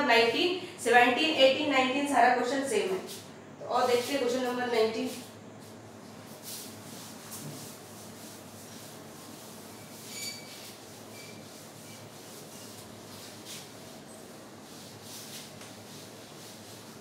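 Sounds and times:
duster rubbing on chalkboard: 6.3s - 17.0s.

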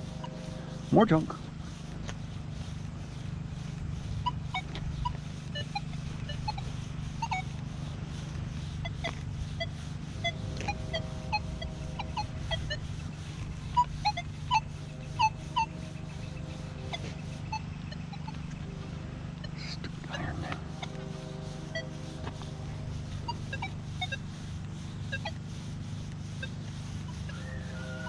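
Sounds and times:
steady low hum: 0.0s - 28.0s
metal detector beeps: 4.2s - 7.6s, 8.6s - 12.9s, 13.7s - 15.8s, 16.8s - 18.6s, 23.1s - 24.3s, 25.1s - 25.4s.

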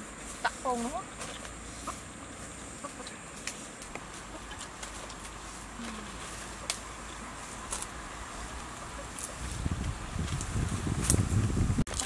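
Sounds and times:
chicken clucking: 1.7s - 3.3s, 4.1s - 4.9s.

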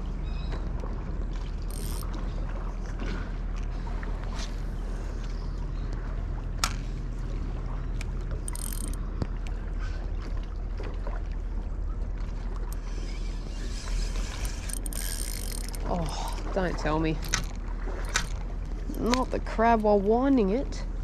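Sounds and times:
water at rocky shore: 0.0s - 21.0s
fishing reel whirr: 1.6s - 2.2s, 8.4s - 9.0s, 12.7s - 16.0s, 17.2s - 19.0s
fishing reel clicks: 1.7s - 2.1s, 8.5s - 9.0s, 12.7s - 15.9s.

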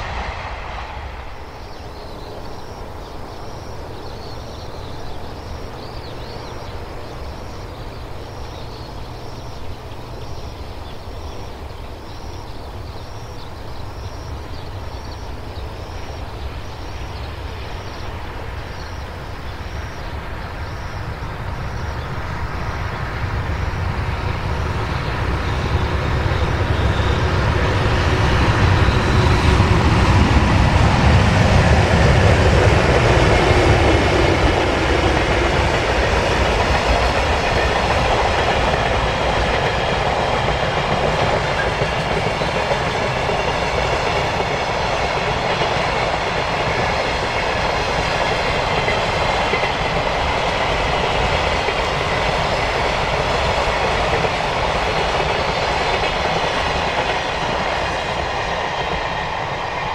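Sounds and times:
wheels on rails: 20.0s - 59.9s.

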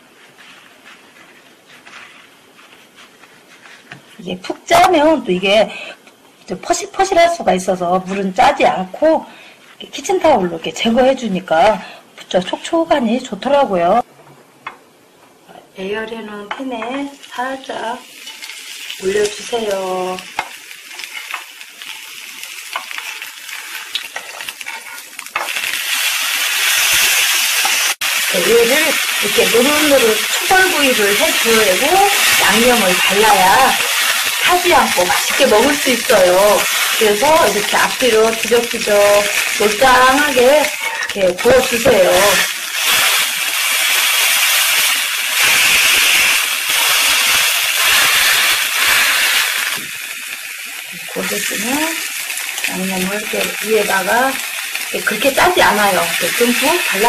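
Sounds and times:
fish sizzling in oil: 16.8s - 57.0s.

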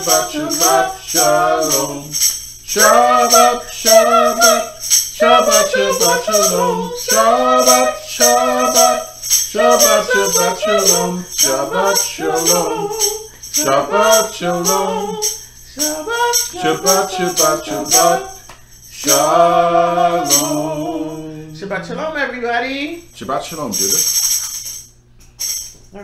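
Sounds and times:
person singing: 0.0s - 18.4s, 19.0s - 21.6s
shaken hand percussion: 0.0s - 21.5s, 23.0s - 26.0s.

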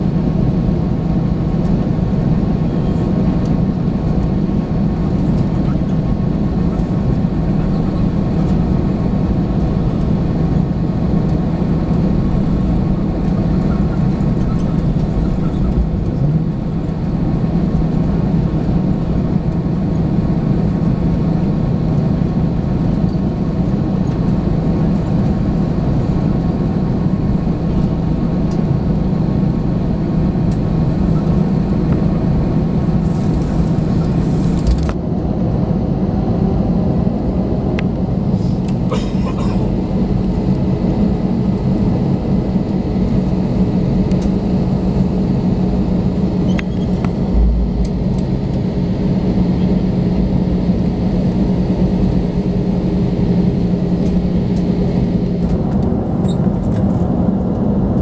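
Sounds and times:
low engine drone: 0.0s - 58.0s
rush of air: 46.8s - 50.0s.

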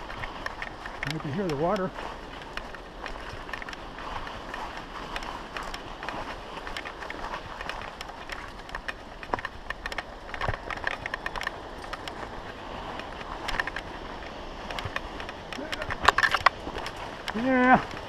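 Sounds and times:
knocks and crunches: 0.0s - 18.0s
mountain bike rattling over trail: 0.0s - 18.0s
rushing water from falls: 0.0s - 18.0s.

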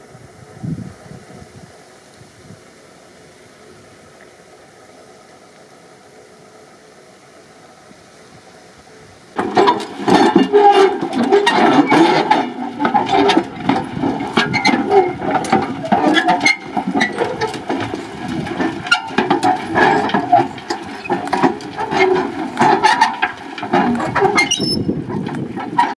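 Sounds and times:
roller rumbling over soil: 0.0s - 25.9s
iron frame rattling and knocking: 9.4s - 25.9s.

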